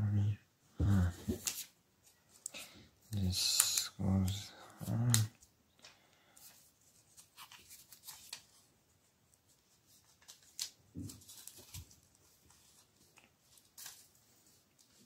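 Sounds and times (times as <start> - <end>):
paper rustling and crinkling: 1.1 - 2.4, 6.4 - 8.7, 9.3 - 15.0.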